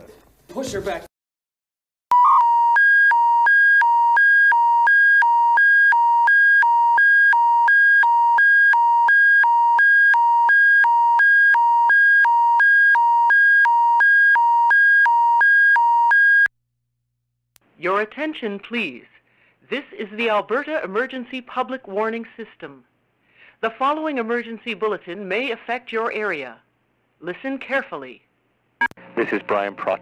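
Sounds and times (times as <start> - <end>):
two-tone electronic alert signal: 2.1 - 16.5.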